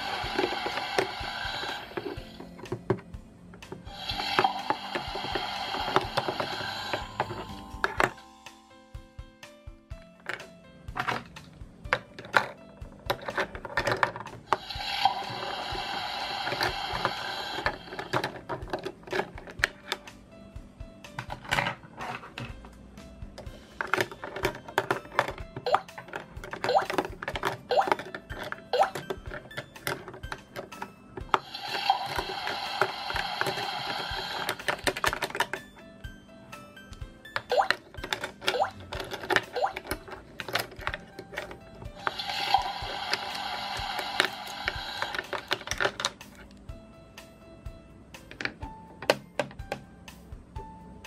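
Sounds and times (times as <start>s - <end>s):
hissing electronic toy sound effect: 0.0s - 2.1s, 3.9s - 7.4s, 14.5s - 18.0s, 31.4s - 34.8s, 42.0s - 45.5s
plastic toy utensils clicking: 23.8s - 35.6s, 37.4s - 46.4s.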